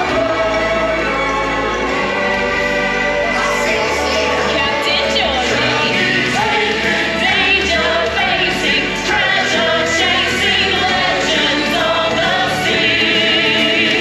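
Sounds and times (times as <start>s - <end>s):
voices singing together: 0.0s - 14.0s.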